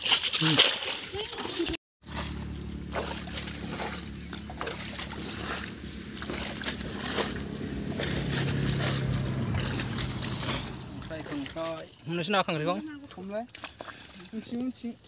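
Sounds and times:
wet clicks and mud splashes: 0:00.0 - 0:15.0
small engine droning: 0:02.0 - 0:11.9.

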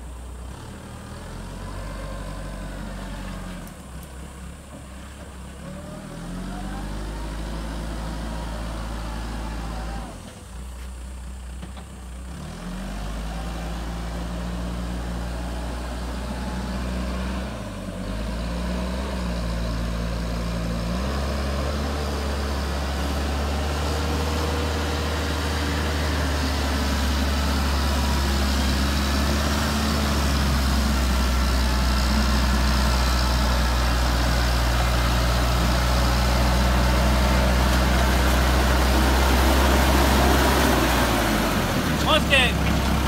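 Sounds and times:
diesel engine running: 0:00.0 - 0:43.0
water splashing around tracks: 0:20.1 - 0:43.0.

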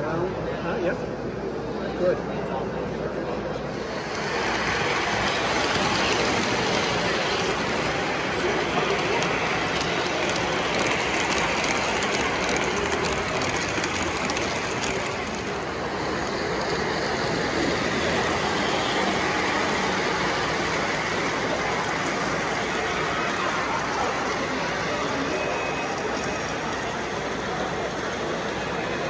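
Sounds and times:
model trains rumbling on track: 0:03.6 - 0:29.0.

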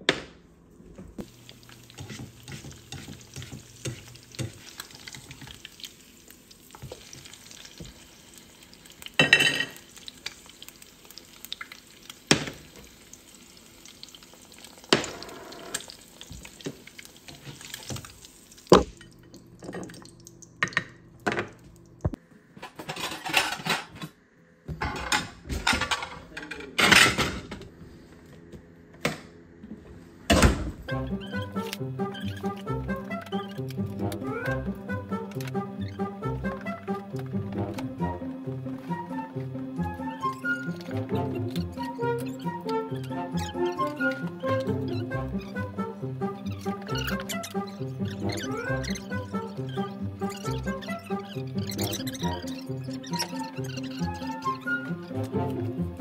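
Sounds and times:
egg sizzling in a pan: 0:01.2 - 0:19.3
dishes clattering: 0:09.2 - 0:09.8, 0:22.6 - 0:24.0, 0:24.8 - 0:27.6.

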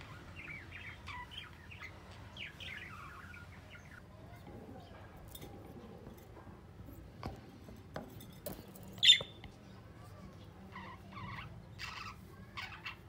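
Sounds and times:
budgerigars chirping: 0:00.0 - 0:04.0, 0:09.0 - 0:09.3, 0:10.7 - 0:13.0.

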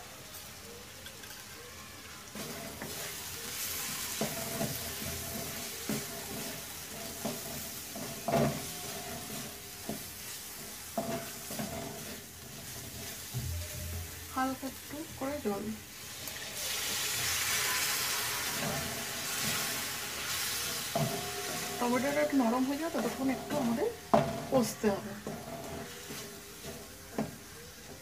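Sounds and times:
paste sizzling in hot oil: 0:02.0 - 0:28.0
spatula stirring and scraping: 0:02.3 - 0:28.0
spatula knocking against pan: 0:23.0 - 0:27.5.

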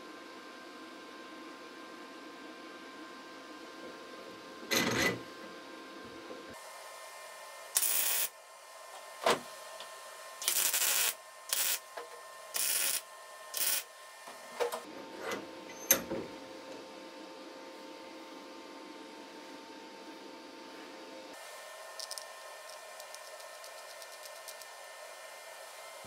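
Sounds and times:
welding arc crackle: 0:07.8 - 0:08.4, 0:10.4 - 0:11.9, 0:12.5 - 0:13.9.

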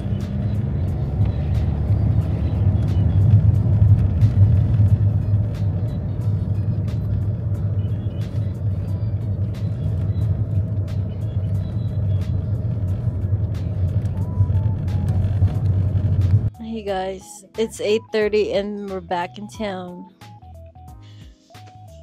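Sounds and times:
car engine and tyres rumbling: 0:00.0 - 0:17.0.

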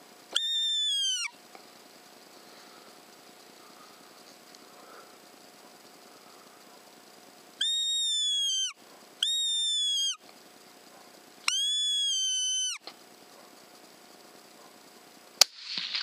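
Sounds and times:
predator call squeal: 0:00.3 - 0:01.4, 0:07.6 - 0:10.2, 0:11.5 - 0:12.9.

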